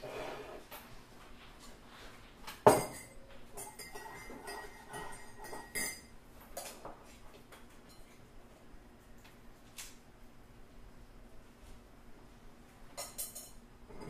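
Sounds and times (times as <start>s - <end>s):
spoon clinking against mug: 2.7s - 6.1s.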